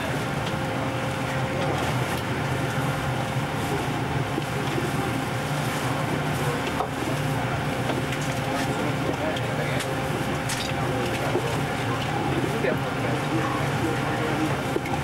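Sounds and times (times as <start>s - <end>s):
ventilation and machinery hum: 0.0s - 15.0s.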